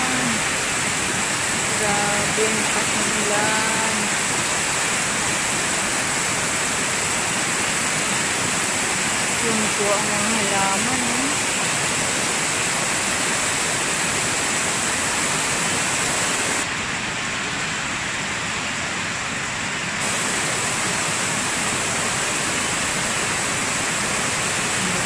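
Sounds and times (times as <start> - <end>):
heavy rain: 0.0 - 25.0.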